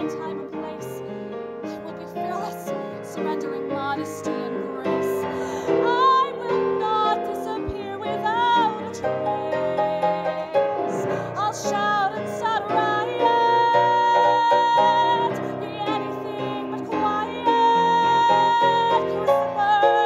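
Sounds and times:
instrumental accompaniment: 0:00.0 - 0:20.0
woman singing: 0:00.0 - 0:20.0.

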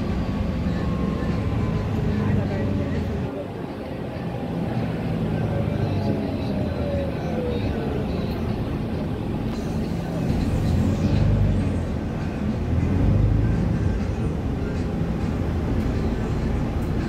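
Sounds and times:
bus engine drone: 0:00.0 - 0:17.0
road rumble: 0:00.0 - 0:17.0.

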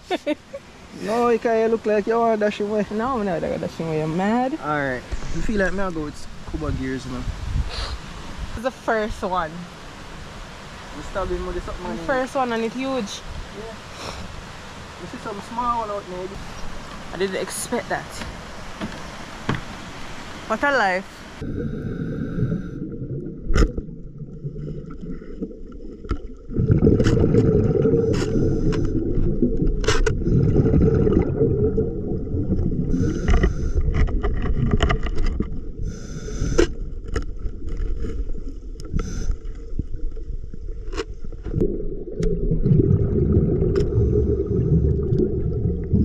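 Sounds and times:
underwater rumble of moving water: 0:21.3 - 0:46.0.

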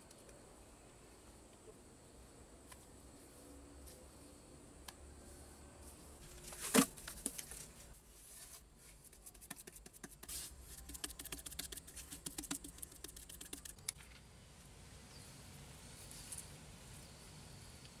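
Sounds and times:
hands patting wet cement: 0:09.1 - 0:14.0.

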